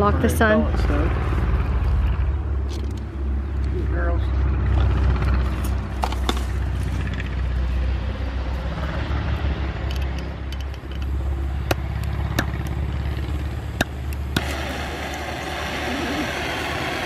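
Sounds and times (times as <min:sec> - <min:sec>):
steady low rumble: 0:00.0 - 0:17.0.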